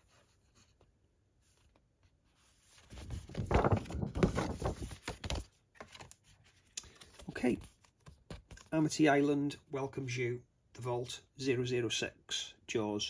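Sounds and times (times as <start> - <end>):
paper rustling and crinkling: 1.4 - 8.8.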